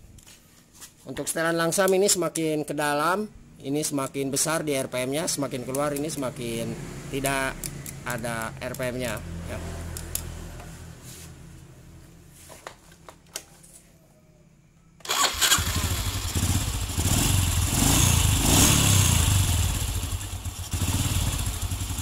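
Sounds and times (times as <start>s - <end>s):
motorcycle engine idling: 15.3s - 17.9s, 19.4s - 22.0s.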